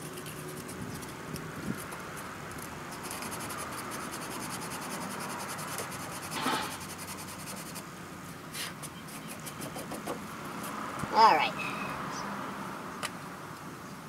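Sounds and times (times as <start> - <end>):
sandpaper rasping on plastic: 0.0 - 2.0, 2.9 - 7.9, 8.5 - 10.2.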